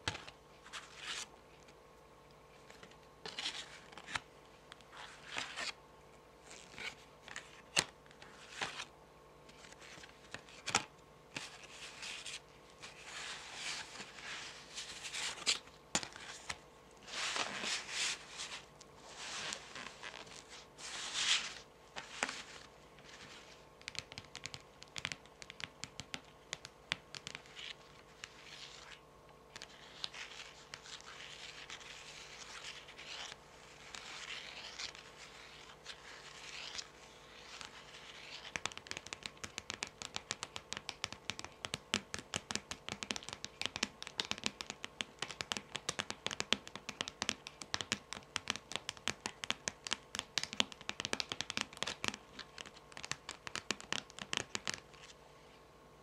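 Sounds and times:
fingernails tapping cards: 23.8 - 27.6, 38.4 - 55.1.

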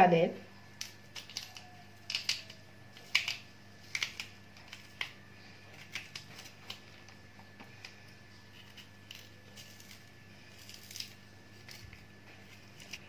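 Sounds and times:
knife scraping gourds: 7.8 - 13.0.

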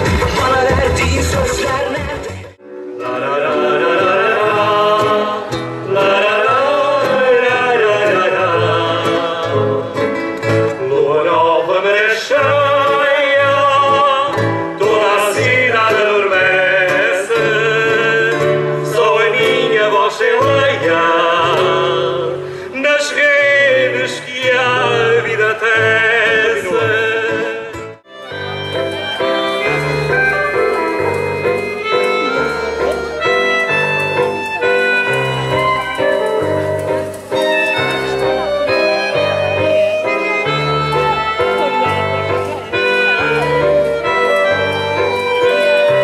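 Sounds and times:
stepping bass line: 0.0 - 2.6
acoustic guitars strumming chords: 0.0 - 46.0
people singing: 3.0 - 10.1, 10.8 - 27.5.

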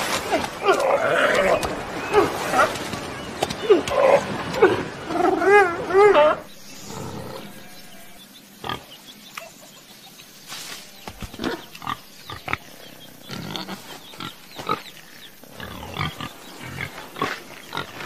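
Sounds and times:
pigs grunting: 11.3 - 18.0.

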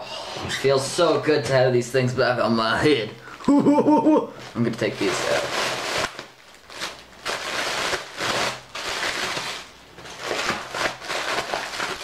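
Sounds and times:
plastic bag crinkling: 4.4 - 12.0.

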